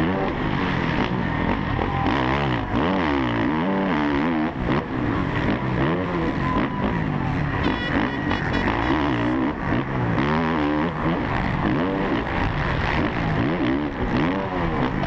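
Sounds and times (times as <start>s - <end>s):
motocross bike engine revving: 0.0s - 15.0s.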